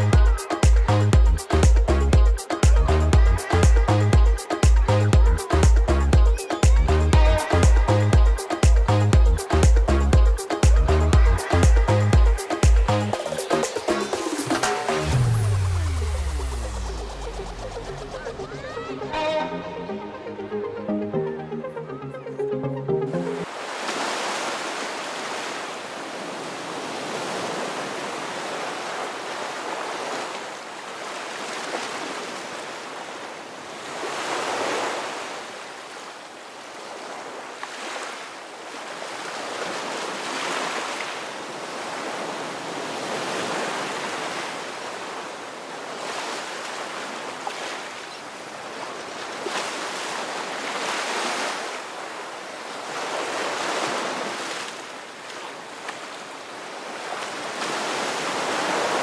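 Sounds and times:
surf breaking on beach: 23.4 - 33.0, 37.0 - 56.0, 56.7 - 59.0.

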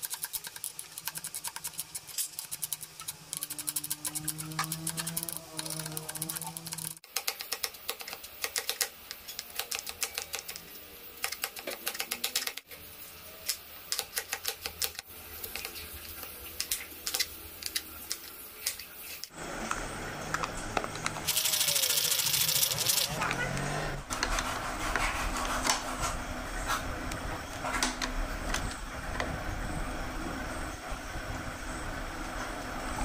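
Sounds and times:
vegetable chopper blades whirring: 0.9 - 7.0, 21.3 - 24.1.

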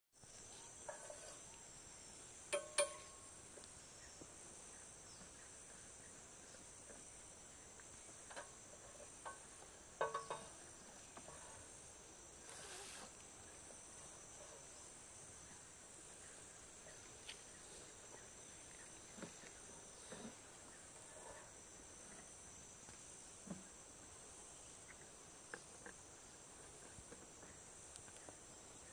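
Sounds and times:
high-pitched insect chorus: 0.2 - 28.9
sharp clicks and knocks: 8.2 - 10.6.

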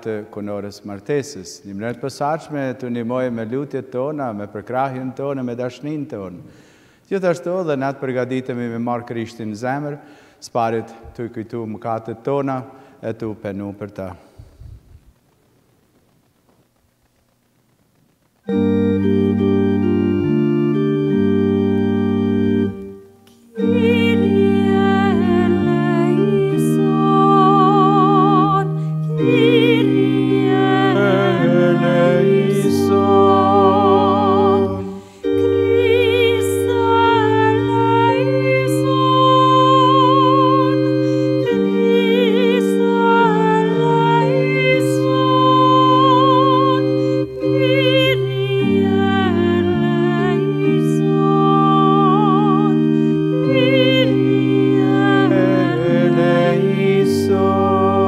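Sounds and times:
organ sustained chords: 18.4 - 58.0
solo singer with wide vibrato: 18.5 - 58.0.

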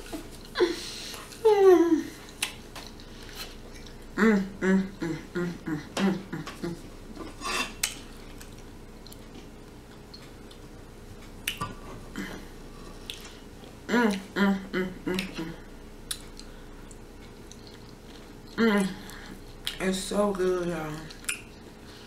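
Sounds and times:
closed-mouth humming: 0.0 - 22.0
fork scraping a plate: 7.2 - 7.8.

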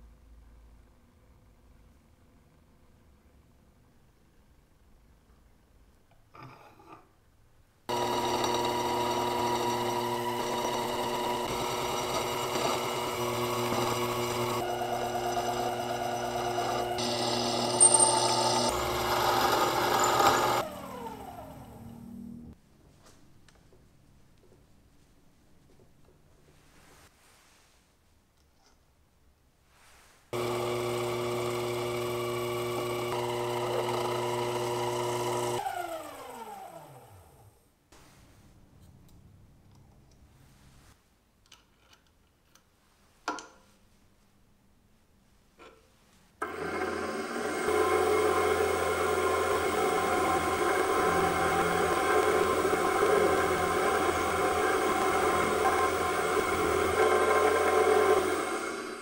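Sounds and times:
drill cutting metal: 7.9 - 21.2, 46.4 - 59.0
milling machine spindle running: 7.9 - 21.9, 30.4 - 36.7, 46.4 - 59.0
lathe motor running: 7.9 - 22.5, 30.4 - 37.2, 46.4 - 59.0.

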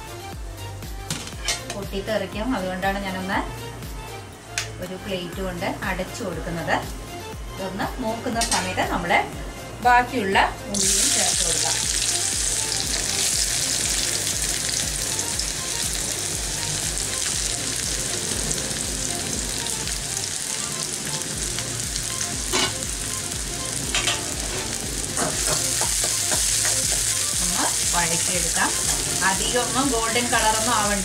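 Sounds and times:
onions sizzling in hot oil: 10.7 - 31.0.

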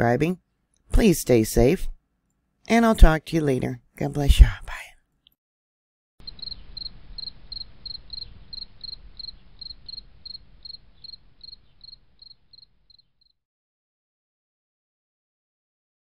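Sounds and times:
cricket chirping: 6.2 - 13.3.

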